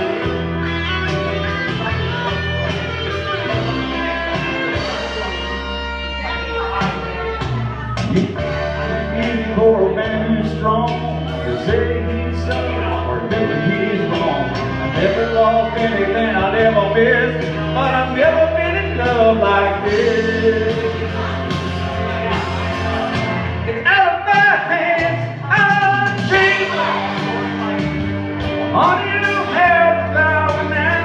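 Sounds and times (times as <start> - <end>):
rock ballad backing track: 0.0 - 31.0
man singing into a microphone: 8.4 - 27.9, 28.6 - 31.0.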